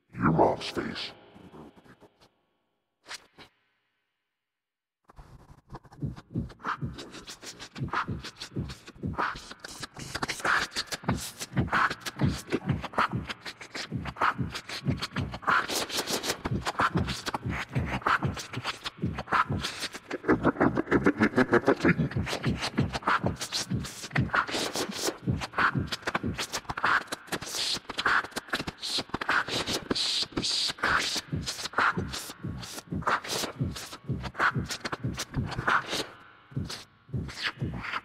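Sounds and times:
rhythmic beat of clicks and hits: 5.8 - 38.0.

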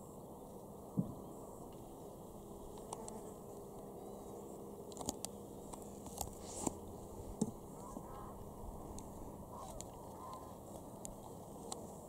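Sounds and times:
geese honking faintly: 6.8 - 11.6.

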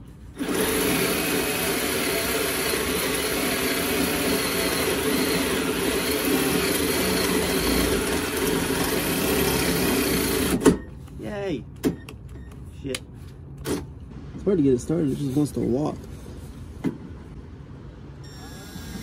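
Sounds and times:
power drill boring through metal: 0.4 - 10.6.

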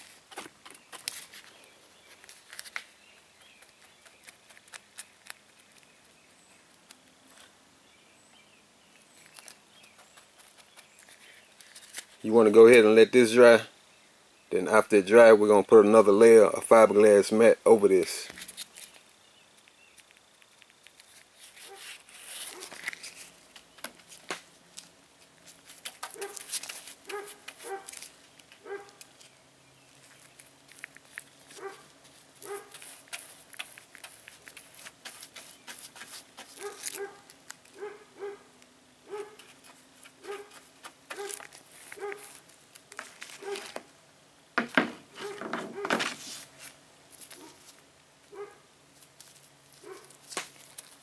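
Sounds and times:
brush dabbing wet resin: 20.4 - 24.2, 30.1 - 37.6, 39.4 - 43.8
faint dog barking: 26.1 - 26.5, 27.1 - 28.0, 28.6 - 29.0, 31.6 - 32.8, 36.6 - 39.5, 40.2 - 41.4, 42.0 - 42.4, 43.4 - 43.8, 45.2 - 46.0, 48.3 - 48.7, 49.8 - 50.2.

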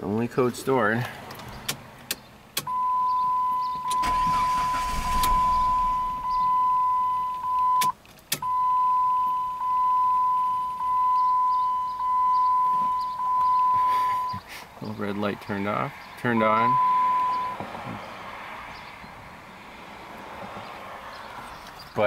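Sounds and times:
sharp clicks: 1.3 - 2.7, 7.3 - 8.5
car warning chime beeping: 2.6 - 14.4, 16.3 - 17.6.

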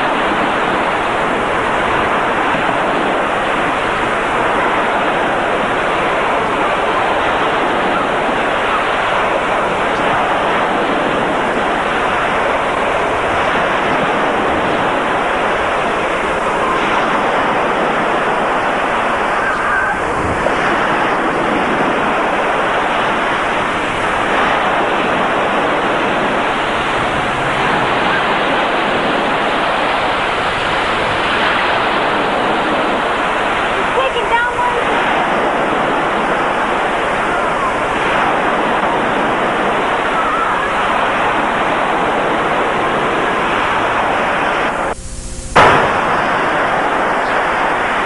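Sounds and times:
waves rushing: 0.0 - 48.0
wind: 0.0 - 48.0.

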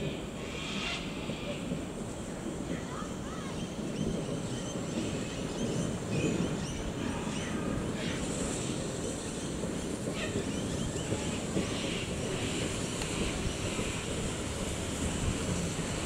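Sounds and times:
steam train rumbling: 0.0 - 16.0
wind buffeting microphone: 1.1 - 16.0.

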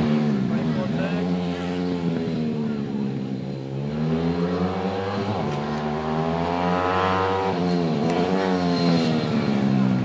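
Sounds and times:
small motorcycle engine revving: 0.0 - 10.0.

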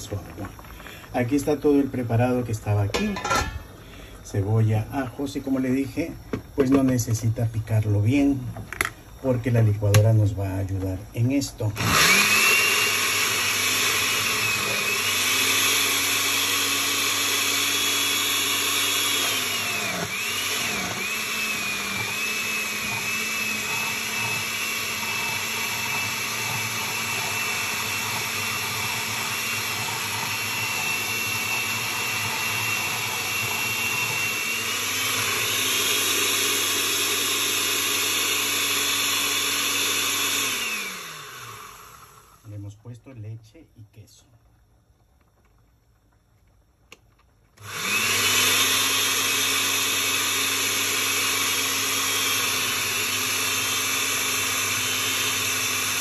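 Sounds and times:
blender motor running: 10.8 - 42.6, 47.6 - 56.0.

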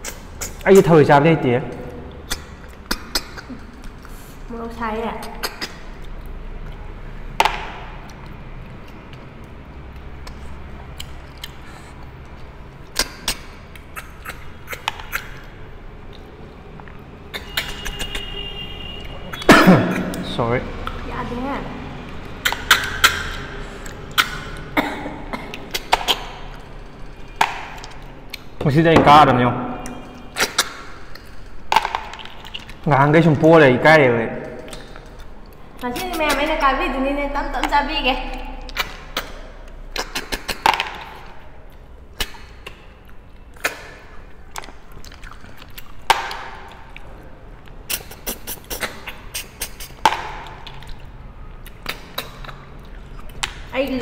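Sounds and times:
snails being slurped: 8.0 - 18.3, 47.8 - 53.5
people slurping snails: 47.8 - 51.1.

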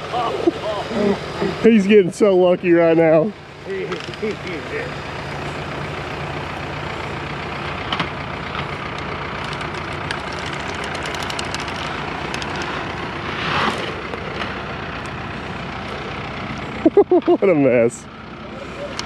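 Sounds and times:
diesel engine running: 0.0 - 19.0
faint rapid ticks: 8.9 - 12.7
rush of noise: 9.4 - 14.3.

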